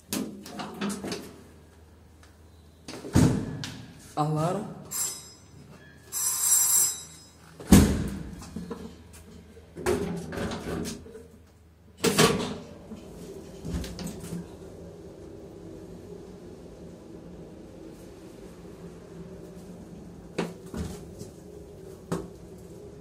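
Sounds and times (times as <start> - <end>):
elevator alarm bell ringing: 4.8 - 7.5.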